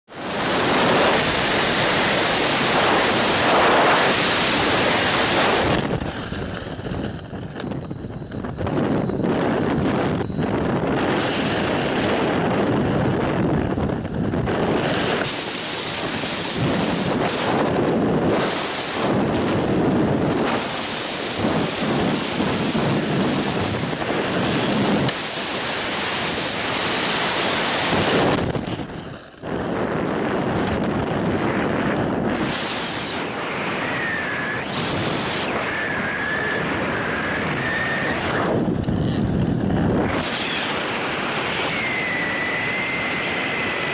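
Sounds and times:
heavy wind buffeting microphone: 0.1 - 43.9
faint gliding whistle: 15.2 - 17.0, 32.5 - 38.6, 40.1 - 43.9.

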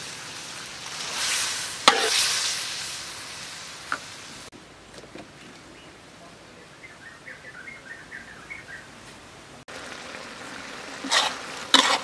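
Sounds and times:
scraping stir strokes in wok: 0.0 - 3.4, 11.0 - 12.0
wok sizzling: 0.0 - 4.6, 9.6 - 12.0.

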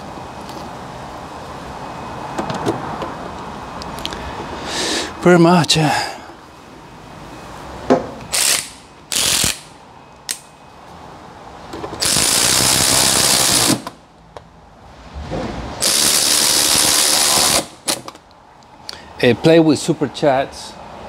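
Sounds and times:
ratchet driving screws: 8.3 - 9.7, 12.0 - 13.9, 15.8 - 18.1.

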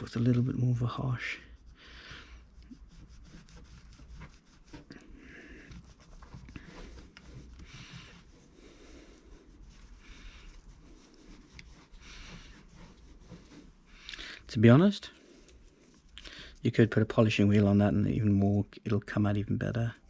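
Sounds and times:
cloth rubbing on metal: 0.0 - 18.3.

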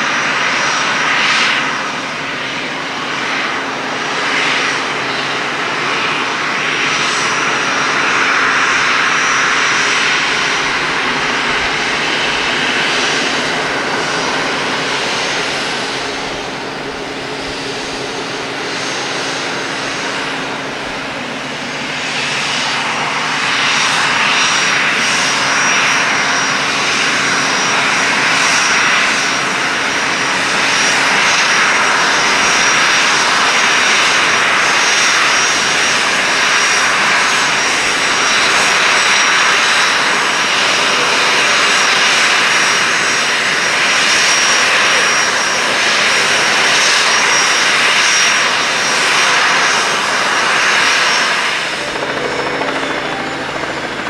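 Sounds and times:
jet engines taxiing: 0.0 - 54.0.

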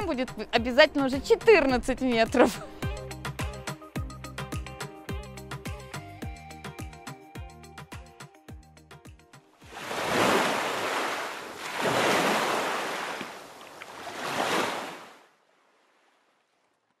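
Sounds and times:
background music: 0.0 - 9.6
breaking waves: 9.6 - 15.3.

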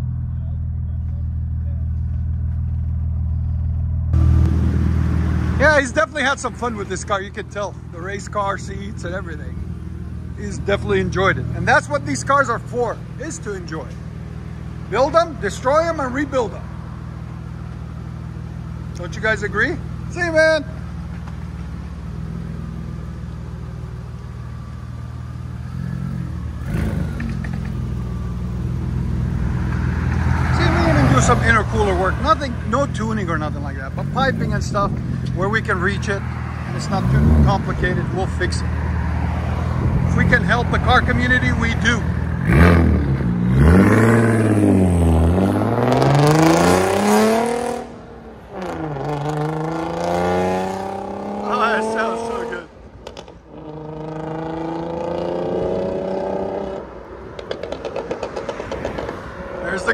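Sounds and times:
car engine idling: 0.0 - 44.9
engine clatter: 57.4 - 59.9.

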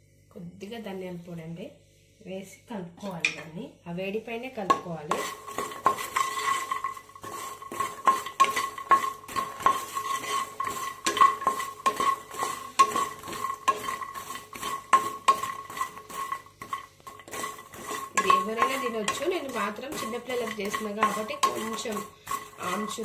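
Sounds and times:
spatula scraping nonstick pan: 4.7 - 23.0.

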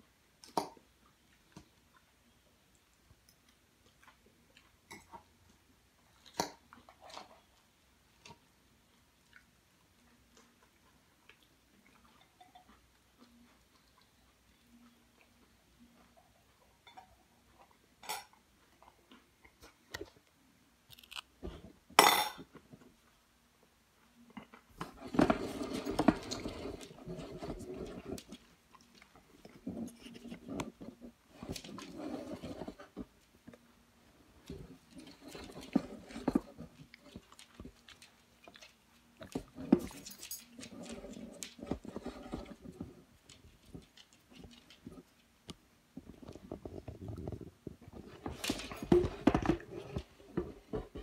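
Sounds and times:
chewing: 0.4 - 20.3, 26.2 - 32.8, 34.4 - 45.4.

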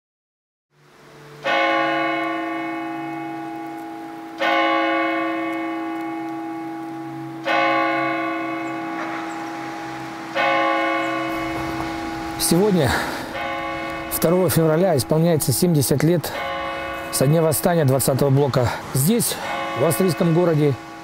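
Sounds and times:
bell tolling: 4.4 - 21.0.

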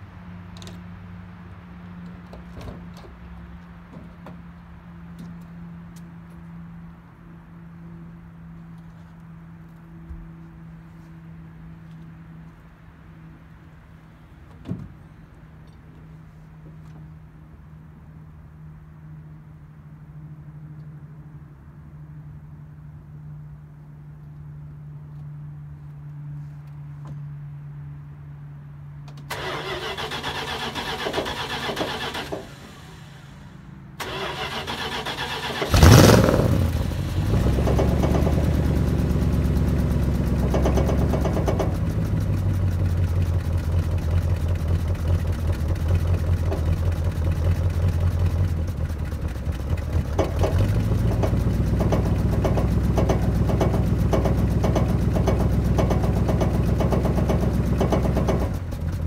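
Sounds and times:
starter motor cranking: 29.3 - 33.3, 34.0 - 38.2
car engine revving and idling: 30.1 - 59.0.

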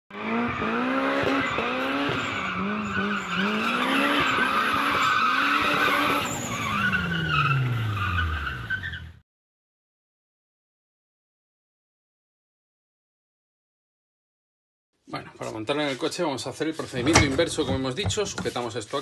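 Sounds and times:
car engine revving: 0.1 - 9.2
tyres squealing: 1.3 - 9.2, 16.8 - 19.0.

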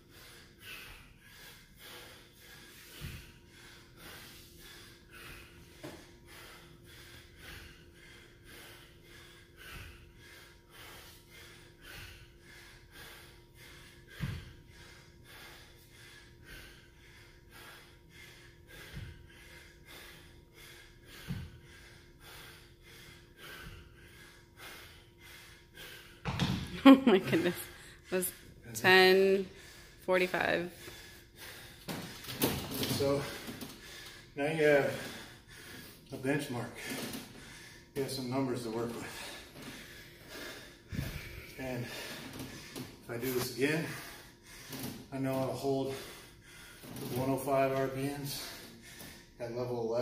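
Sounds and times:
man panting hard: 0.0 - 50.0.

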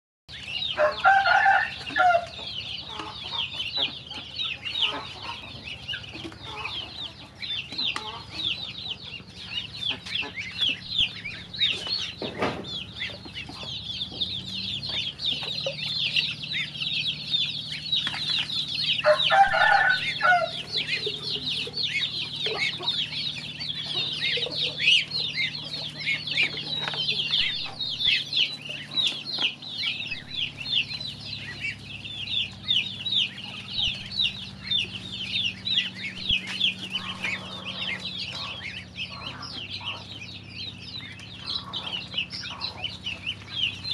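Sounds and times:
chicks and ducklings peeping: 0.3 - 43.9
lower bird call: 4.0 - 43.9.

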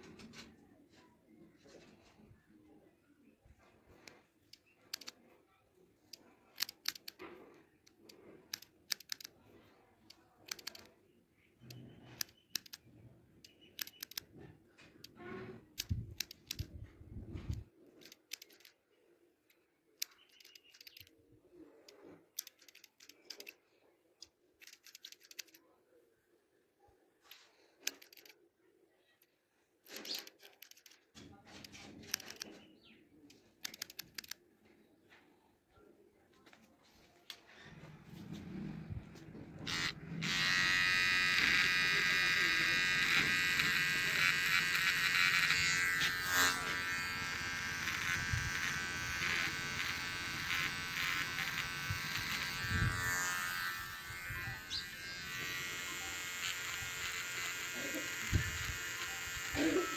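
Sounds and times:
scissors snipping hair: 10.1 - 10.9, 24.6 - 25.6, 39.7 - 59.9.

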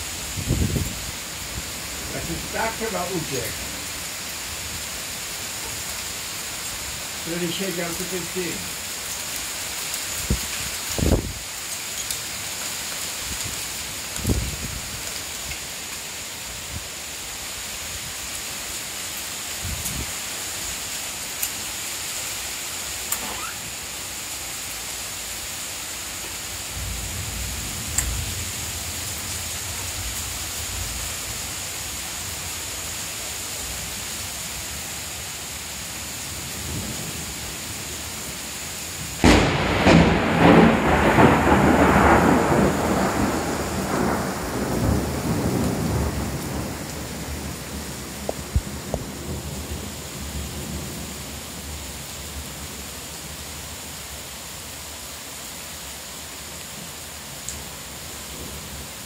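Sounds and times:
heavy rain falling: 0.0 - 59.0
thunder crack and rumble: 39.2 - 49.9.

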